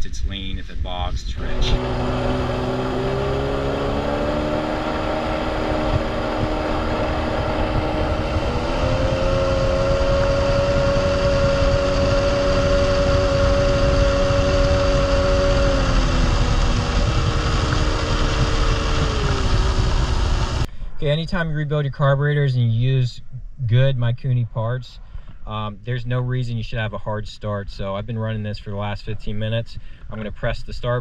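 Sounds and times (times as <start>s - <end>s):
jet ski engine running: 1.4s - 20.7s.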